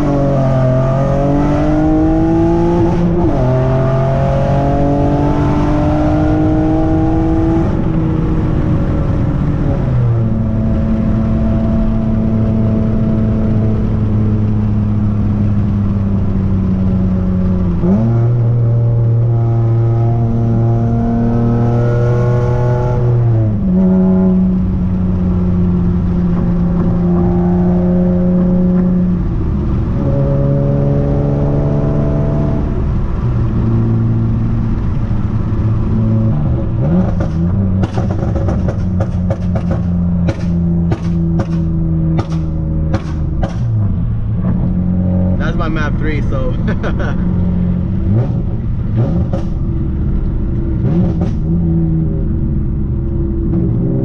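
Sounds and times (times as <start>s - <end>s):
car engine accelerating: 0.0s - 54.0s
sharp clicks and knocks: 37.0s - 43.8s.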